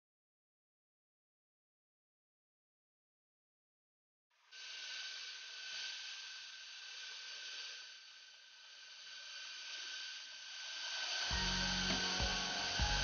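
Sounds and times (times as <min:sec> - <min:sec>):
steady outdoor hiss: 0:04.4 - 0:13.0.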